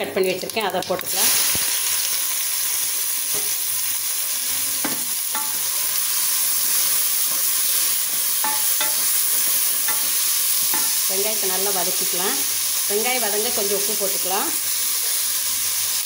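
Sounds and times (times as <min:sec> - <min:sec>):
onions sizzling in hot oil: 0:00.0 - 0:16.0
spoon clinking against pot: 0:08.4 - 0:09.1.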